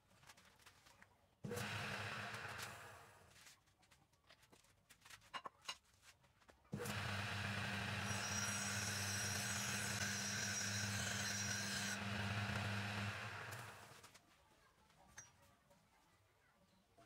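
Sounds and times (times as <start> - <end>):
lathe motor humming: 1.5 - 3.0, 6.8 - 14.0
hand file rasping on steel: 8.0 - 12.8.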